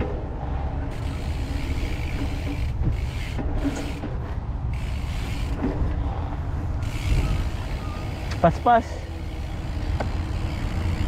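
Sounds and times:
wind rumble on microphone: 0:00.0 - 0:08.4
bike tyre noise: 0:00.0 - 0:11.0.

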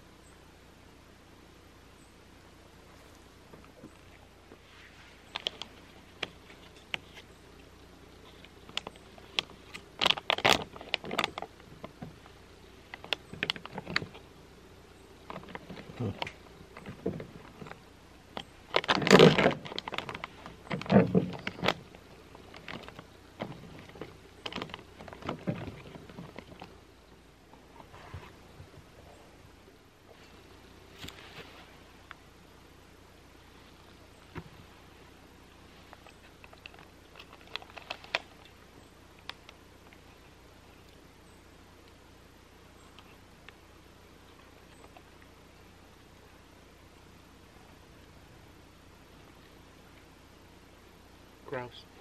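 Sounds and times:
foil pouch crinkling and rustling: 0:05.2 - 0:07.3, 0:08.2 - 0:12.3, 0:15.2 - 0:26.8, 0:35.9 - 0:38.6.

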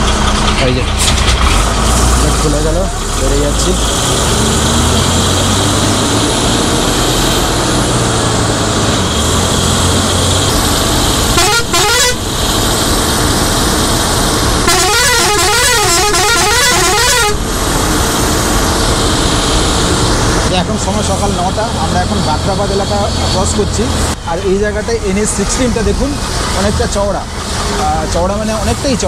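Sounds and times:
bus engine and tyres on wet road: 0:00.0 - 0:29.0
warbling vehicle horn: 0:11.3 - 0:12.3, 0:14.6 - 0:17.4.

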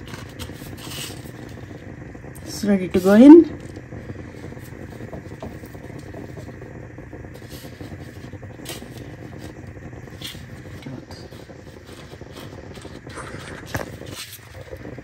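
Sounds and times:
breadcrumbs scraping and crinkling: 0:00.0 - 0:01.8, 0:07.3 - 0:15.0
steady low hum: 0:00.0 - 0:15.0.

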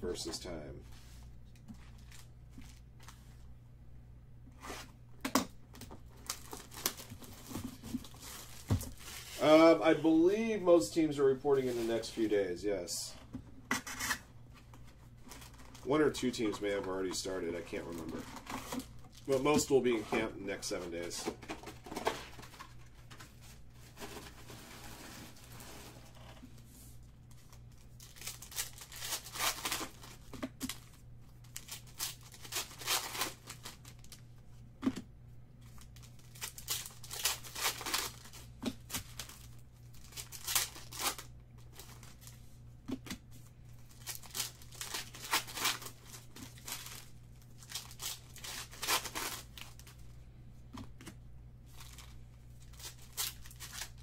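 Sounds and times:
foil wrappers tearing and crinkling: 0:06.2 - 0:09.7, 0:27.4 - 0:34.2, 0:35.6 - 0:42.4, 0:43.8 - 0:50.0, 0:51.7 - 0:54.0.

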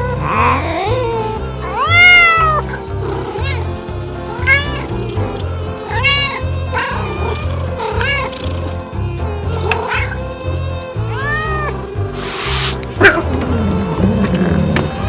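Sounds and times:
cat yowling and meowing: 0:00.0 - 0:04.9, 0:05.8 - 0:08.6, 0:09.5 - 0:10.4, 0:11.0 - 0:13.3.

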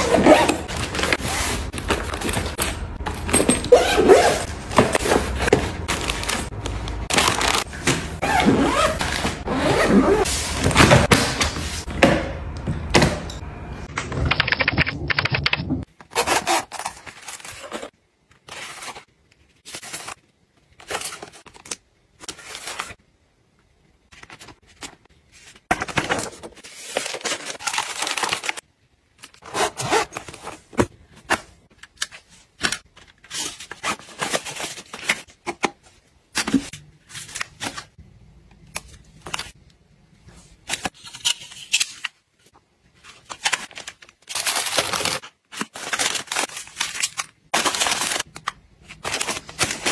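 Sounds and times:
plastic and paper rustling: 0:04.5 - 0:08.2, 0:24.1 - 0:28.6, 0:42.9 - 0:49.9.

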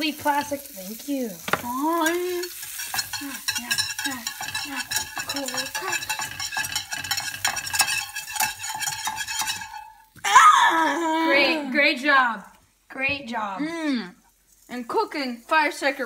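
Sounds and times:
cheese frying in a pan: 0:00.0 - 0:16.0
utensil scraping pan: 0:01.4 - 0:10.1.

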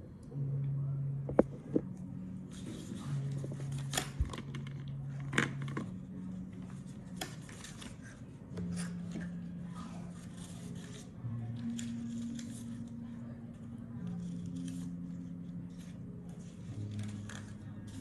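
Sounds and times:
low steady tone: 0:00.0 - 0:07.2
paper rustling and crinkling: 0:02.5 - 0:13.2, 0:14.0 - 0:18.0.

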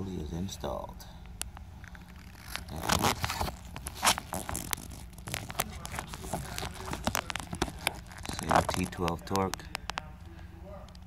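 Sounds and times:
gloved hand handling clicks and scrapes: 0:01.3 - 0:10.1.

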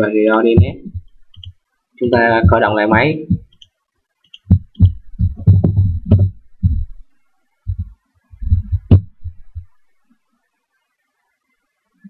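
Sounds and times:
mouse clicks: 0:01.2 - 0:01.6, 0:03.5 - 0:05.0.

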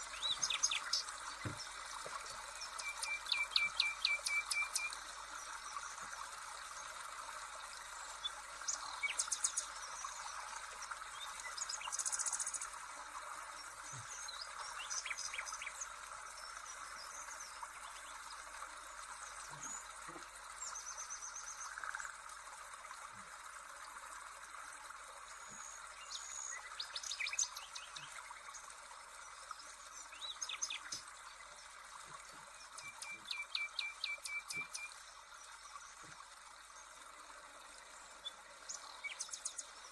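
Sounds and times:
birds chirping: 0:00.0 - 0:05.0.

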